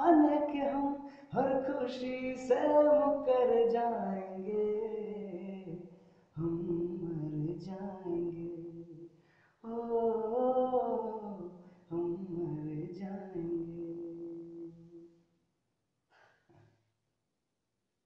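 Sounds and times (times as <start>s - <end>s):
man singing unaccompanied: 0.0s - 5.8s, 6.4s - 9.0s, 9.6s - 14.9s.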